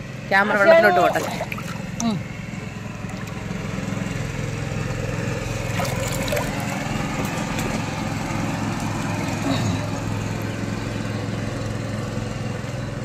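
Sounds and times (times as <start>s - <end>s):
small engine droning: 0.0s - 13.0s
hands splashing in water: 1.0s - 2.2s, 5.5s - 7.8s.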